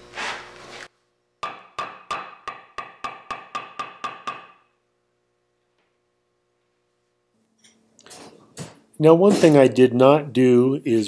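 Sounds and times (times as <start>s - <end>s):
wooden mallet tapping wooden ball: 1.4s - 4.6s.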